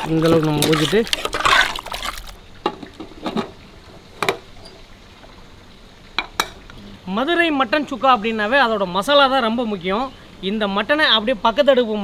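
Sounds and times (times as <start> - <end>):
water pouring into pressure cooker: 0.0 - 2.3.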